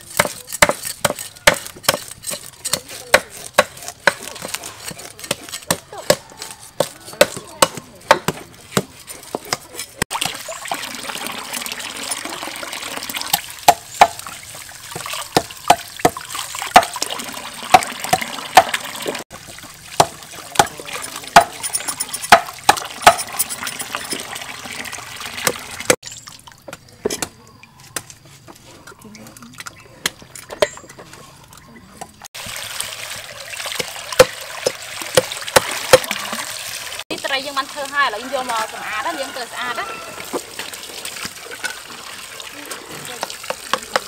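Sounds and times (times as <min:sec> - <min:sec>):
vegetables knocking and splashing: 0:00.0 - 0:11.7, 0:12.4 - 0:21.6, 0:32.3 - 0:37.0, 0:43.0 - 0:44.0
knife chopping on wooden block: 0:00.1 - 0:09.8
water pouring into metal basin: 0:10.1 - 0:26.7, 0:32.4 - 0:44.0.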